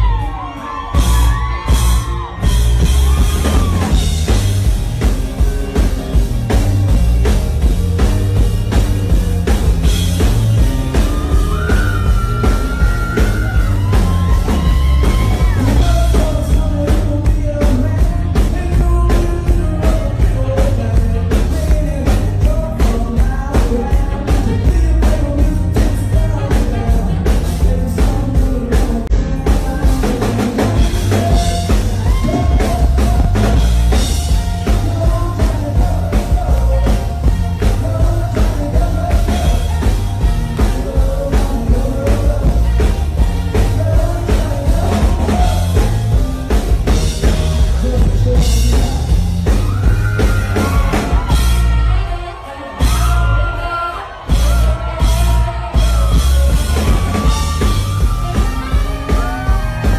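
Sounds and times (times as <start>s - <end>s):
rock band playing live: 0.0s - 59.9s
man singing: 9.9s - 59.9s.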